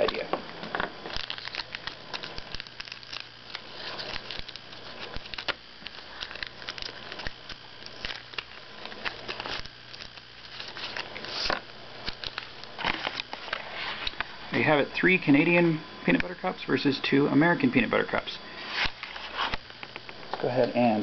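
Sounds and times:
plastic wrappers crinkling: 1.0s - 14.3s.

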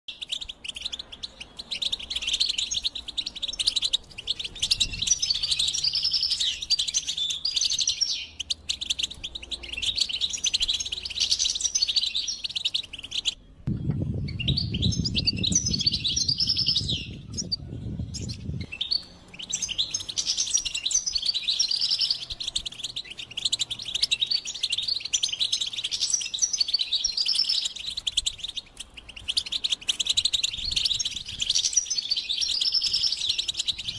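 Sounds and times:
goldfinch twittering: 0.1s - 33.9s
low rumbling noise: 13.4s - 19.8s.

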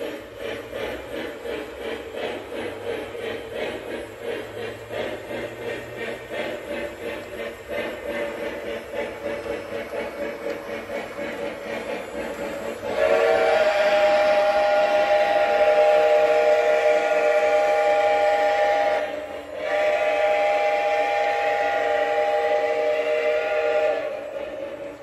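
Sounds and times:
model steam locomotive chuffing: 0.0s - 25.0s
steam whistle: 12.9s - 24.6s.

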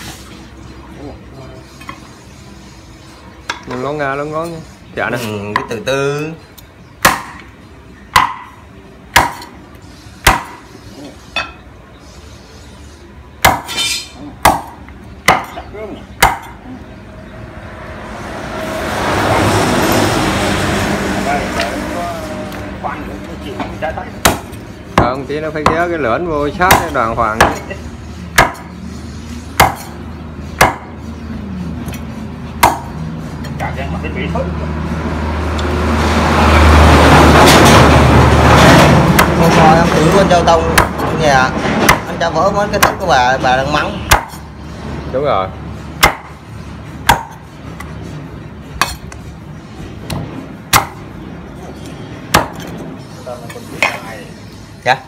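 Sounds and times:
cleaver chopping on wooden block: 7.0s - 7.5s, 8.1s - 9.6s, 10.2s - 10.6s, 13.4s - 13.8s, 14.4s - 16.6s, 24.2s - 25.9s, 26.6s - 27.7s, 28.3s - 28.7s, 29.6s - 30.0s, 30.6s - 31.0s, 32.6s - 33.0s, 40.7s - 41.1s, 42.8s - 43.0s, 44.1s - 44.4s, 46.0s - 46.4s, 47.0s - 47.4s, 50.1s - 51.0s, 52.3s - 52.7s.

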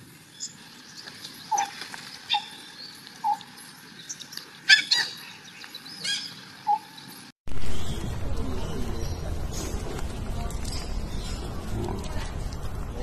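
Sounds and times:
high animal chirps and squeaks: 0.4s - 7.1s.

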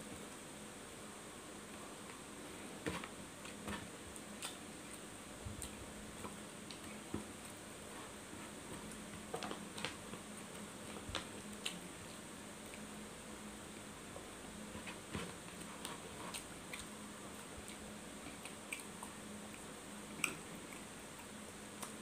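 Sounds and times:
faint steady hum: 0.0s - 22.0s
fingers working rice on paper: 14.6s - 19.7s
person chewing food: 14.8s - 22.0s.

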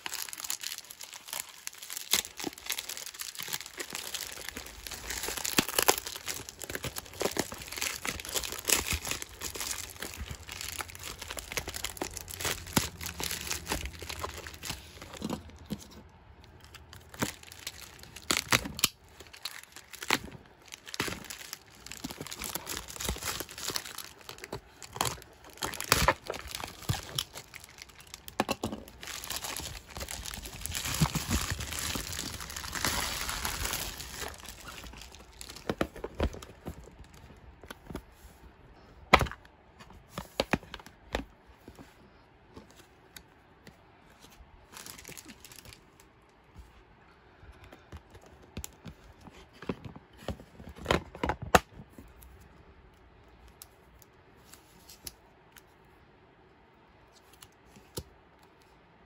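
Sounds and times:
plastic bag crinkling and tearing: 0.0s - 15.8s, 16.4s - 38.0s, 44.6s - 46.1s.

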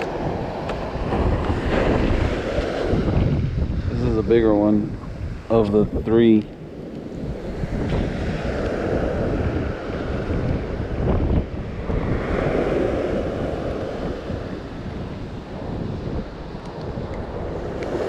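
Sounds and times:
surf washing on beach: 0.0s - 18.0s
wind buffeting microphone: 0.0s - 18.0s.

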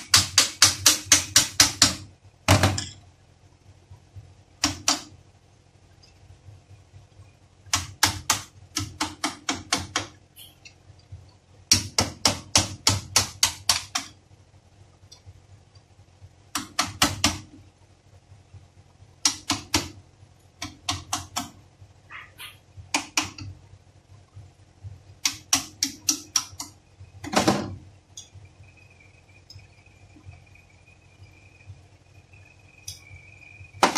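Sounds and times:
hammer tapping steel punch: 0.0s - 3.0s, 25.2s - 26.8s.

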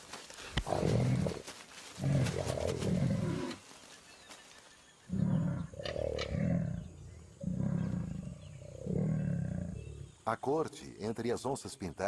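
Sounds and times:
jaguars growling and snarling: 0.6s - 3.6s, 5.1s - 10.9s.

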